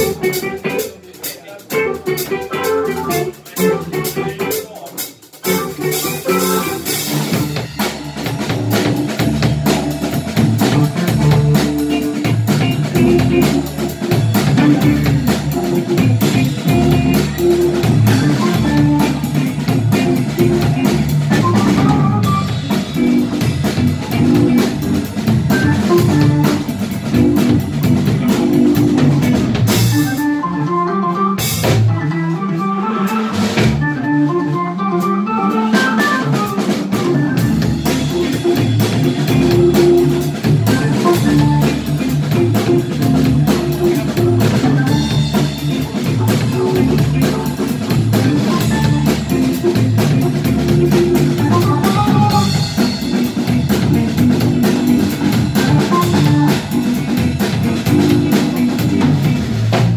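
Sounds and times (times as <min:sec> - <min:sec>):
acid-jazz band playing: 0:00.0 - 0:59.9
drum kit: 0:00.0 - 0:59.9.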